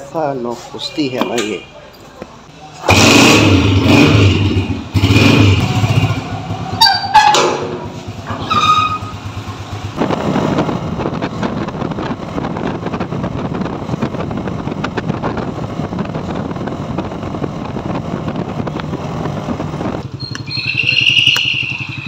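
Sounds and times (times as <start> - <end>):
small motorcycle engine running: 2.9 - 22.0
metallic door bolt squeak: 6.8 - 7.6, 20.2 - 22.0.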